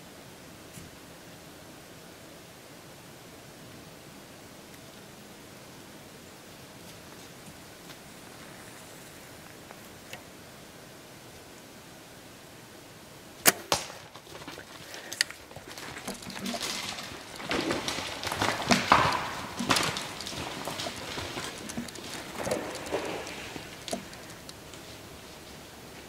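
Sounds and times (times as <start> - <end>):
arrow striking: 13.4 - 14.1
bow release crack: 13.4 - 14.5
deer crashing through dry leaves: 13.7 - 26.0.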